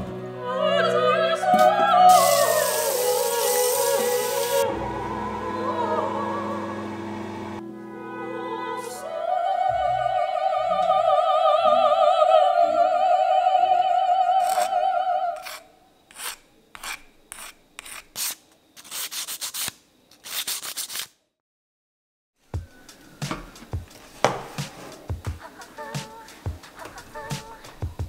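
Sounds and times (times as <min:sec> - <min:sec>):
operatic singing with vibrato: 0:00.0 - 0:15.6, 0:25.2 - 0:28.0
hand scraping plastic part: 0:14.4 - 0:14.7, 0:15.4 - 0:21.1.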